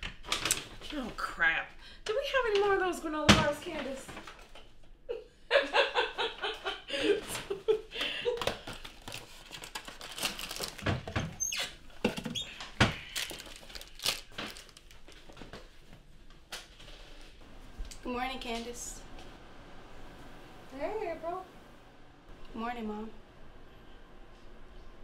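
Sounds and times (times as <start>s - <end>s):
packets being handled: 8.4s - 15.6s.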